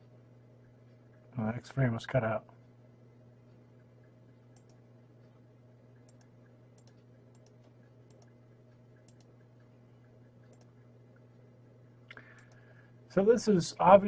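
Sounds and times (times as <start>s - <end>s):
faint low hum: 0.0s - 14.0s
faint clicks: 4.5s - 5.4s, 6.0s - 9.7s, 10.4s - 10.7s, 12.0s - 12.7s.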